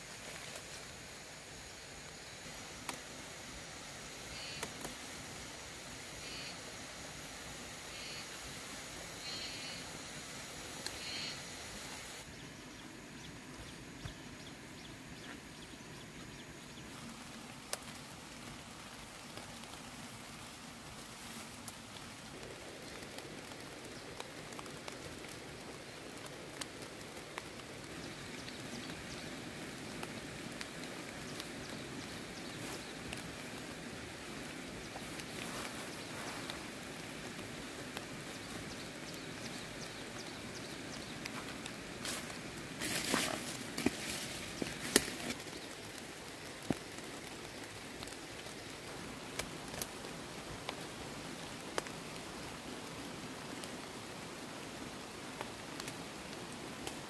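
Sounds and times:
leafy plants rustling: 0.0 - 3.4, 14.6 - 57.0
stems snapping: 41.2 - 45.5.

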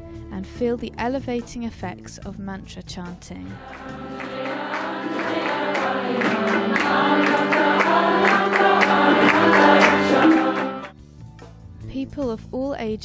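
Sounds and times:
group chanting: 3.6 - 10.9.

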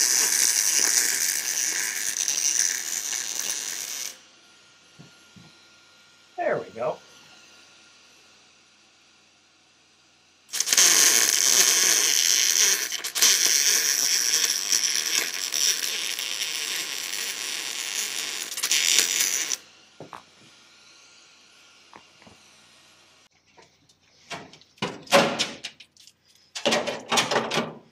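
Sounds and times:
welder arc crackling: 0.0 - 4.2, 10.5 - 19.6.

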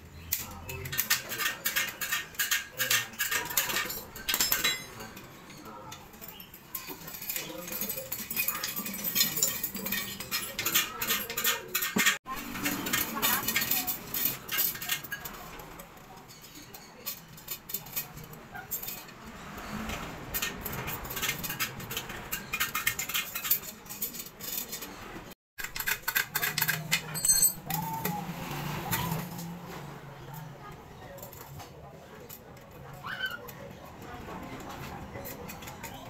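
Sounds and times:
metal spokes clinking against rim: 0.2 - 25.0, 25.6 - 28.2.

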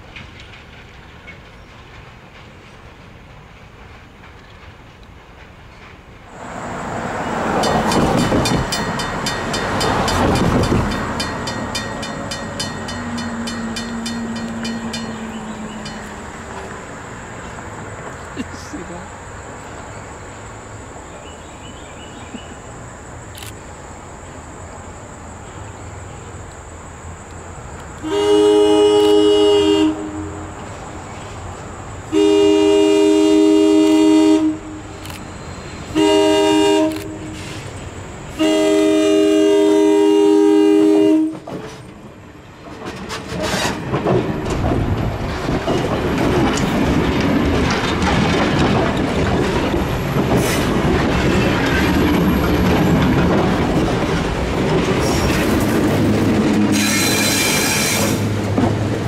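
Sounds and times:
wheels clicking over rail joints: 0.0 - 18.6, 41.0 - 59.0
train rumble: 0.0 - 59.0
locomotive horn blasts: 28.0 - 30.5, 32.1 - 35.0, 35.9 - 37.5, 38.3 - 41.5, 56.7 - 58.2.

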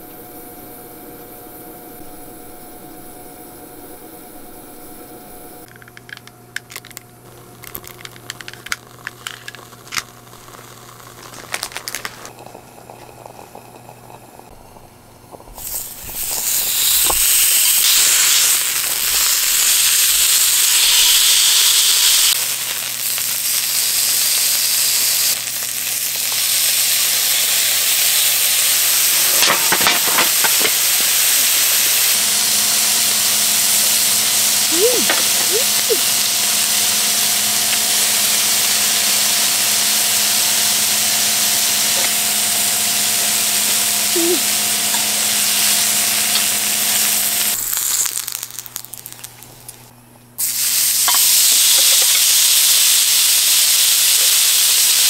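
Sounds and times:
beef sizzling on a grill pan: 15.5 - 49.5, 50.4 - 55.0.

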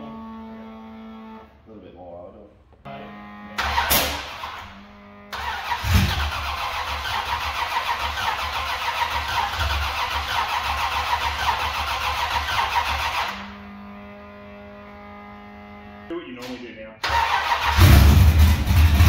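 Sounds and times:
loud unmuffled engine running: 2.9 - 16.1, 17.2 - 19.0.

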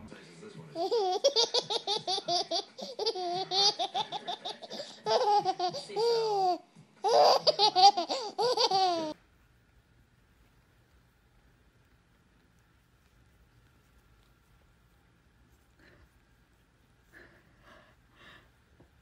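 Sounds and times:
baby laughing: 0.7 - 9.2.

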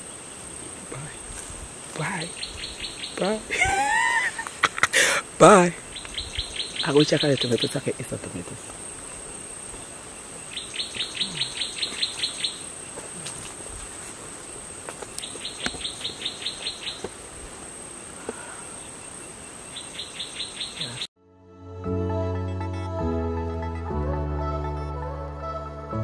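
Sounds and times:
high insect buzz: 8.6 - 21.0.

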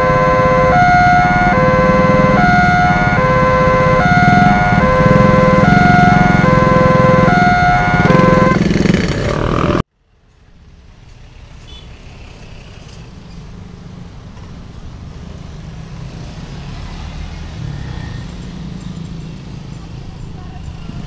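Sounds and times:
level-crossing warning alarm: 0.0 - 8.6
motorcycles and cars passing: 0.1 - 9.9, 10.6 - 21.0
motorcycle engines idling: 1.8 - 11.6, 17.4 - 21.0.

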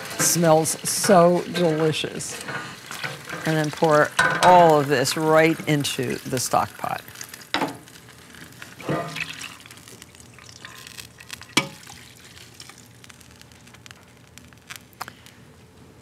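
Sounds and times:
liquid trickling and splashing into pot: 8.8 - 13.0.

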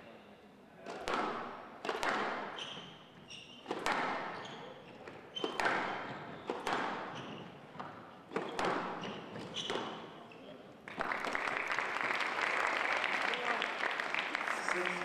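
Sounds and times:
squash ball hitting racquets and walls: 0.8 - 10.3
shoes squeaking on wooden floor: 2.5 - 10.8.

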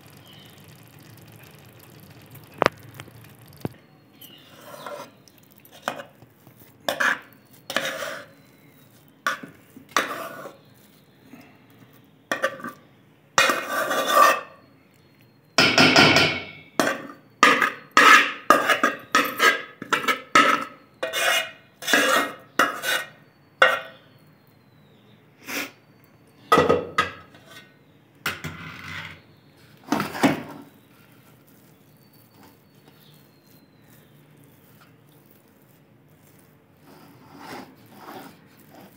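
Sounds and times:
metal spoon scraping metal pot: 4.2 - 11.1, 12.3 - 12.8, 13.4 - 14.6, 16.0 - 24.0, 26.9 - 27.8, 30.0 - 38.9.

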